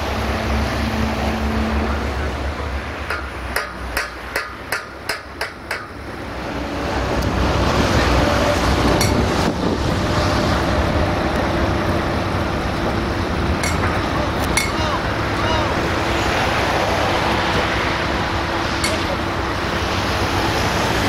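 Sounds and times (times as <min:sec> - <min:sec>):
crane engine running: 0:00.0 - 0:21.0
sharp knocks: 0:03.0 - 0:06.0.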